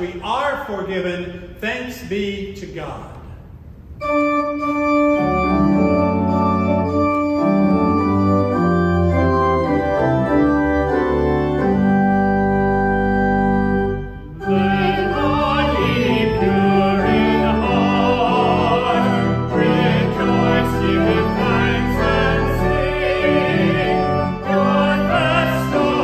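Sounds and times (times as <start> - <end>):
organ playing held chords: 3.8 - 26.0
person singing with vibrato: 14.4 - 26.0.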